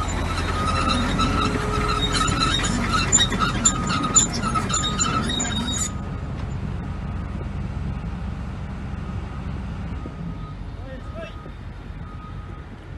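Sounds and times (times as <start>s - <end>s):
steel tracks squealing and clanking: 0.0s - 6.7s
excavator engine rumble: 0.0s - 12.9s.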